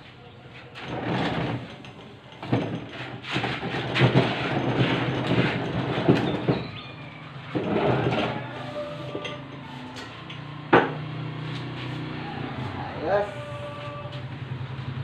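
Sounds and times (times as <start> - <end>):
plastic table scraping on concrete: 0.8 - 10.0.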